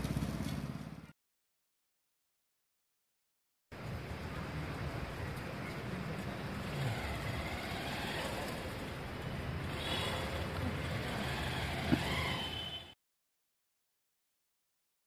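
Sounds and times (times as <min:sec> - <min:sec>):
low rumble of road traffic: 0:00.0 - 0:01.1, 0:03.7 - 0:13.0.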